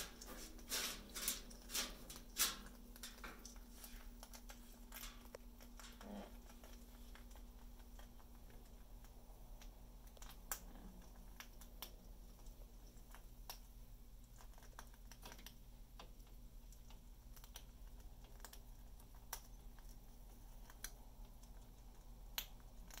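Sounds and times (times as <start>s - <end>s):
room hum: 0.0s - 23.0s.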